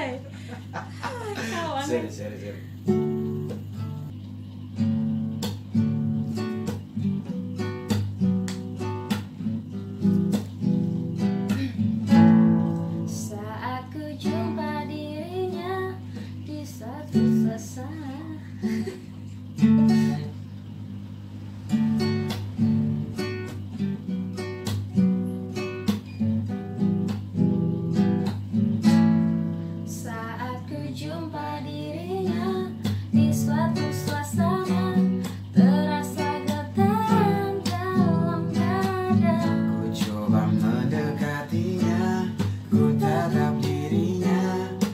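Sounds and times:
acoustic guitar strumming: 0:00.0 - 0:44.9
person singing: 0:30.0 - 0:44.9.

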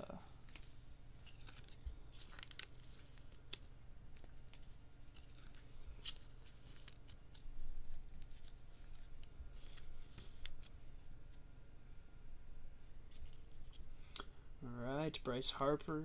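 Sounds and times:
steady low hum: 0:00.0 - 0:16.0
cards clicking and rustling: 0:00.4 - 0:10.8.

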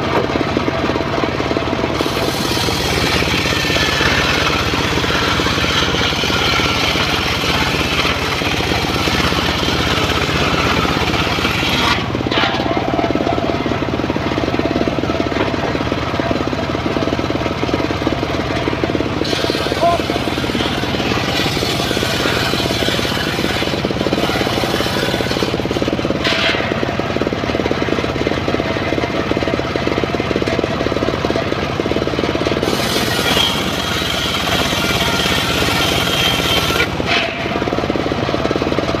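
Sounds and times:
saw bench engine running: 0:00.0 - 0:39.0
saw blade ripping timber: 0:01.9 - 0:13.4, 0:19.2 - 0:26.9, 0:32.4 - 0:37.7.

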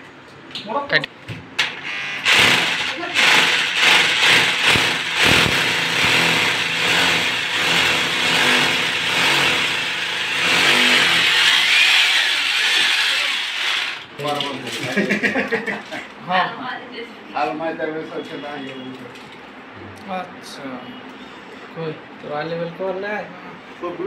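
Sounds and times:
electric drill boring into wall: 0:01.6 - 0:14.1.

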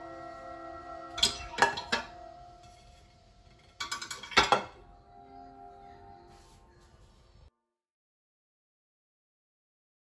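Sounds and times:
ceramic plates clinking on dish rack: 0:03.6 - 0:04.8.

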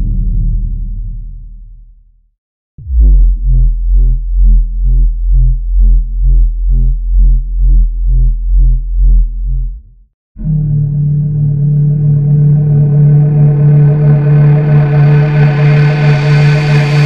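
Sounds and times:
pulsing low synth drone: 0:00.0 - 0:02.0, 0:02.8 - 0:17.0
bright sustained drone: 0:10.7 - 0:17.0.

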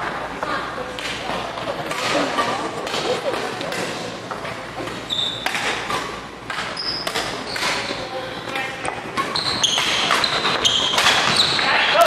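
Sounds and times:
rackets striking shuttlecock: 0:01.9 - 0:11.7
shoes squeaking on floor: 0:04.8 - 0:06.1, 0:06.7 - 0:08.0, 0:09.1 - 0:11.8.

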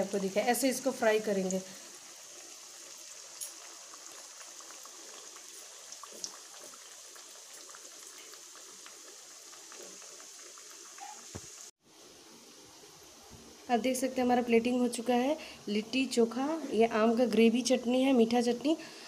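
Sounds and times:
dough deep-frying in oil: 0:00.0 - 0:12.1.

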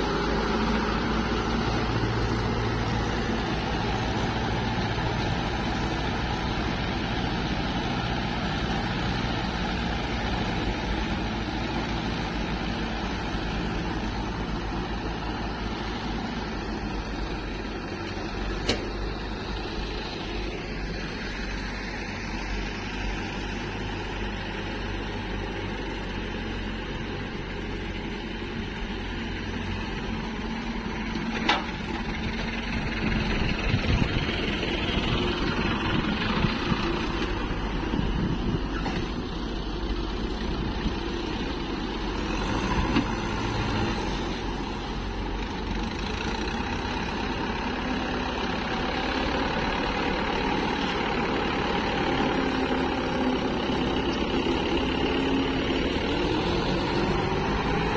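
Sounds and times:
diesel tractor engine running: 0:00.0 - 0:57.9.

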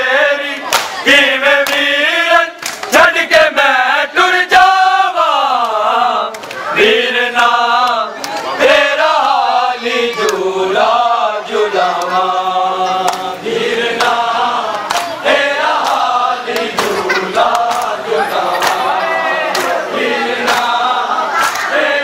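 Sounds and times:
men chanting a lament: 0:00.0 - 0:22.0
sharp slaps: 0:00.7 - 0:01.0, 0:01.6 - 0:01.9, 0:02.6 - 0:03.0, 0:14.0 - 0:15.2, 0:15.8 - 0:18.0, 0:19.5 - 0:19.8, 0:20.5 - 0:20.8, 0:21.4 - 0:21.7.

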